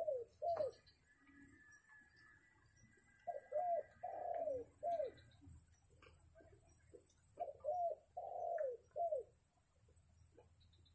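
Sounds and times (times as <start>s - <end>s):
dove cooing: 0.0s - 0.9s, 3.2s - 5.4s, 7.4s - 9.4s.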